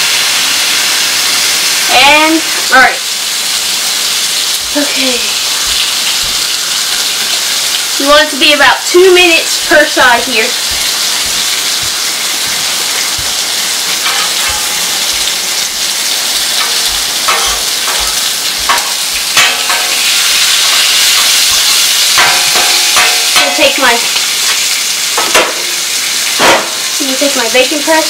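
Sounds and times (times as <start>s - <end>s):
bacon sizzling on a griddle: 0.0s - 28.0s
spatula scraping metal griddle: 14.0s - 14.9s, 16.6s - 21.6s, 22.2s - 23.7s.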